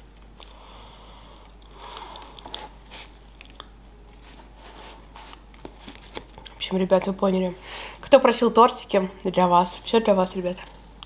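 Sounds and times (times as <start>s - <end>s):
person chewing cake: 0.3s - 6.6s
wet mouth clicks: 0.4s - 3.8s.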